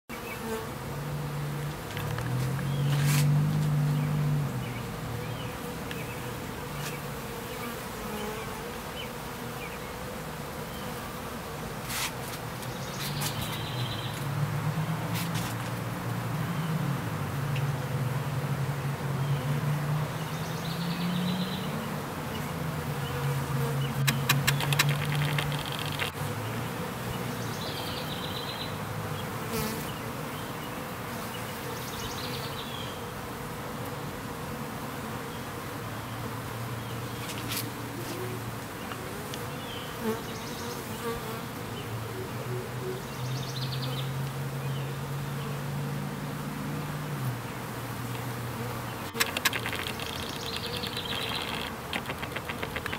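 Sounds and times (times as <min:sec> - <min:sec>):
honeybees buzzing: 0:00.1 - 0:52.9
sharp clicks: 0:24.0 - 0:26.2, 0:49.1 - 0:52.9.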